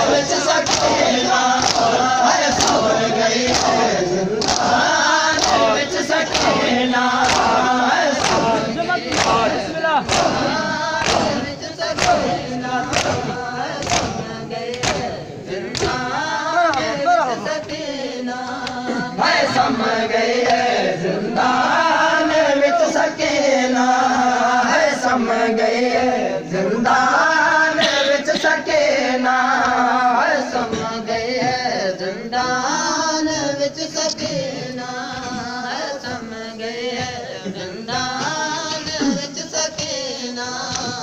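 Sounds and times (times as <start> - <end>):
men chanting in unison: 0.0 - 41.0
hand slaps on chest: 10.1 - 15.1.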